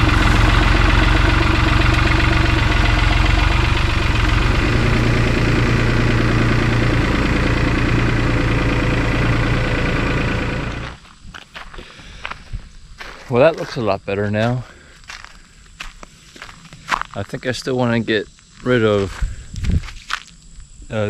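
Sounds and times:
tractor engine running: 0:00.0 - 0:17.4.

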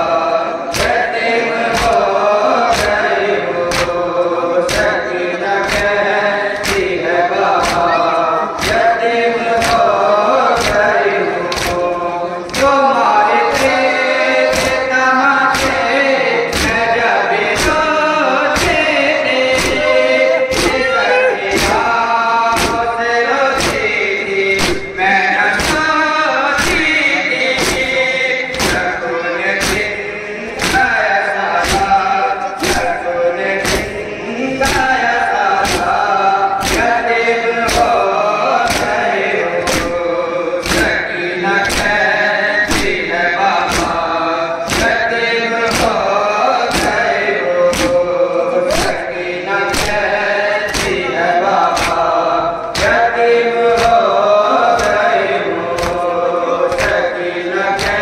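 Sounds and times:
men chanting together: 0:00.0 - 0:58.0
hands striking chests: 0:06.6 - 0:07.0, 0:07.6 - 0:08.0, 0:10.5 - 0:10.9, 0:11.5 - 0:11.9, 0:15.5 - 0:15.8, 0:18.6 - 0:18.8, 0:19.5 - 0:21.9, 0:22.5 - 0:22.9, 0:23.5 - 0:25.9, 0:26.6 - 0:29.0, 0:29.6 - 0:31.0, 0:31.6 - 0:33.0, 0:33.6 - 0:34.0, 0:35.6 - 0:37.0, 0:38.6 - 0:41.0, 0:43.7 - 0:44.1, 0:44.7 - 0:45.0, 0:45.7 - 0:48.1, 0:49.7 - 0:50.1, 0:50.7 - 0:53.0, 0:53.8 - 0:54.1, 0:54.7 - 0:55.2, 0:57.8 - 0:58.0.

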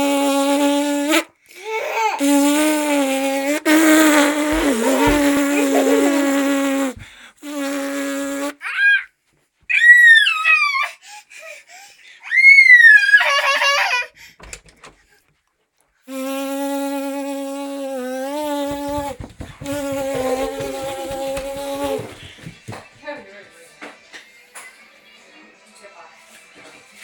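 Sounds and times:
quick light footsteps: 0:04.5 - 0:06.2, 0:18.5 - 0:23.7
toddler shrieking: 0:08.6 - 0:09.1, 0:09.7 - 0:10.9, 0:12.2 - 0:14.1.

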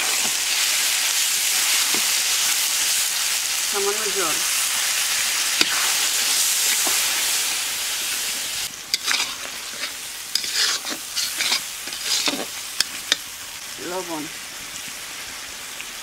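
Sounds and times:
paste sizzling in oil: 0:00.0 - 0:16.0
metal spatula scraping a pan: 0:08.9 - 0:13.3.

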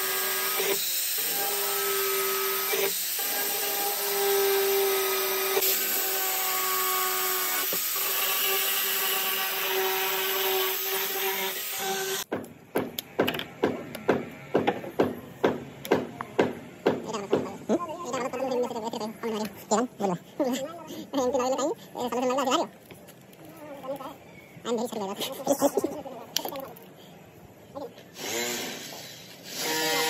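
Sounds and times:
electric drill cutting plastic: 0:00.0 - 0:12.3, 0:28.2 - 0:30.0.

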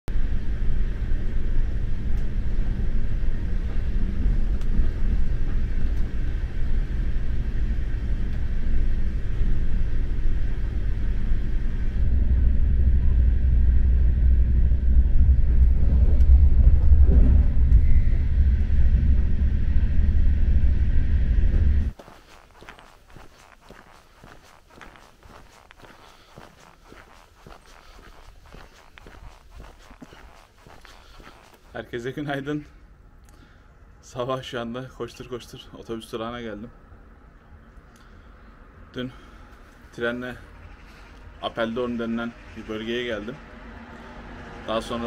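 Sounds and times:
loud low rumble: 0:00.1 - 0:21.9.

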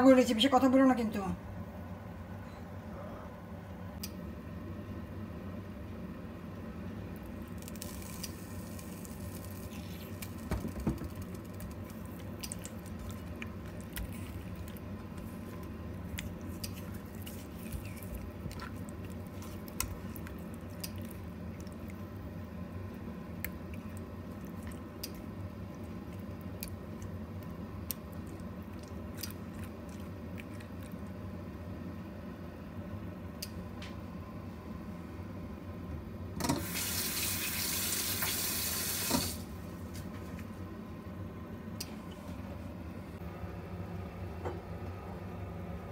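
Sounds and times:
steady low hum: 0:00.0 - 0:36.5, 0:39.4 - 0:45.9
wet squishing of hand rubbing fish: 0:07.5 - 0:22.1.

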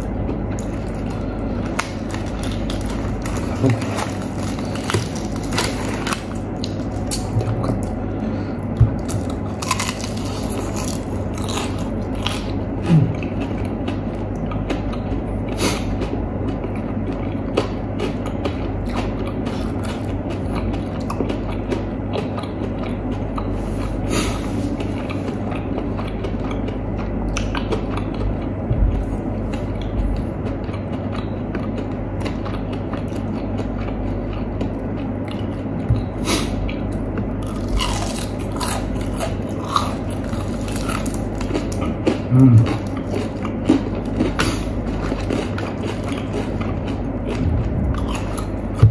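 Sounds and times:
chewing and crunching: 0:00.0 - 0:48.9
low hum: 0:00.0 - 0:48.9
crispy coating crackling: 0:00.6 - 0:07.4.

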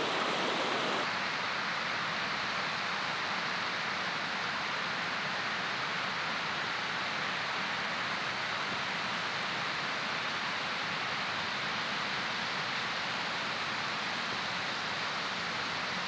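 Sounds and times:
running water rushing: 0:00.0 - 0:01.1.

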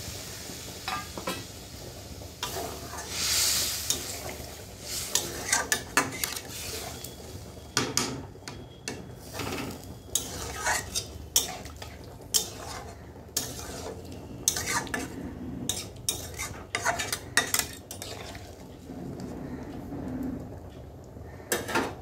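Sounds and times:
metal spoon scraping pan: 0:02.4 - 0:07.1, 0:08.5 - 0:18.6.

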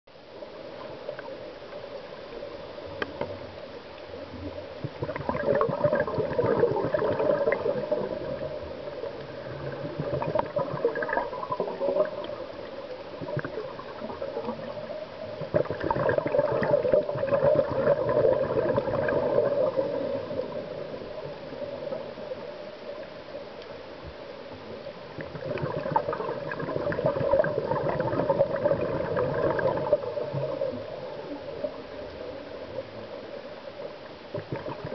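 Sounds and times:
underwater hiss: 0:02.1 - 0:23.1
regulator bubbling exhalations: 0:04.8 - 0:08.6, 0:09.2 - 0:12.4, 0:15.4 - 0:20.4, 0:25.2 - 0:30.7, 0:34.4 - 0:34.9.

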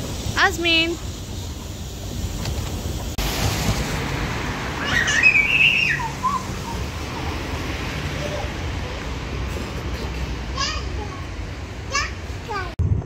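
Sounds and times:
toddler squealing: 0:04.8 - 0:07.4.

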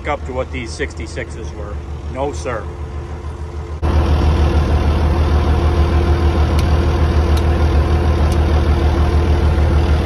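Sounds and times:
tractor diesel engine throbbing: 0:00.0 - 0:10.0.

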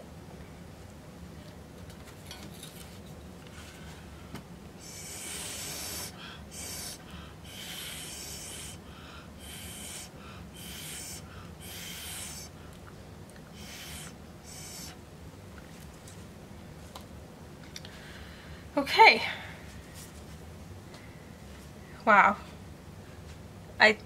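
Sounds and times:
breath puffs through a straw: 0:04.8 - 0:08.8, 0:09.4 - 0:12.5, 0:13.5 - 0:15.0.

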